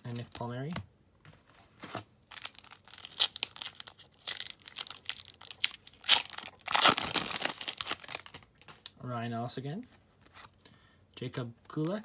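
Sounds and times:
foil pack tearing and crinkling: 0:02.2 - 0:08.4.

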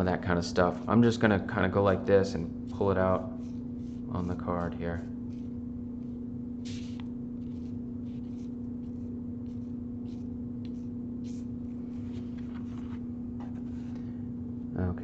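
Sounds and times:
low hum: 0:00.0 - 0:15.0
palette knife scraping paint: 0:02.7 - 0:12.5.

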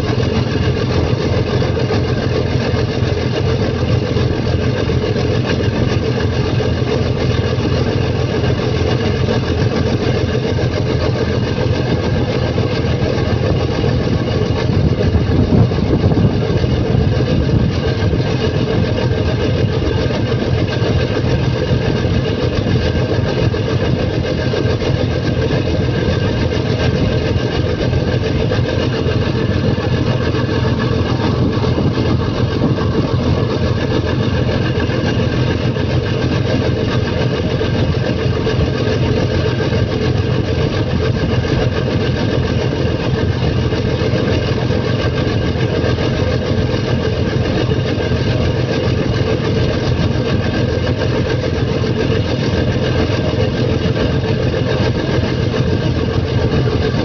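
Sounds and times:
boat engine droning: 0:00.0 - 0:57.0.

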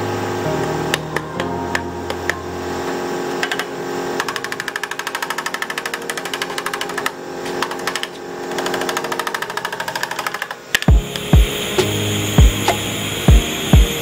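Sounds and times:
power tool hammering on metal: 0:03.4 - 0:14.0.

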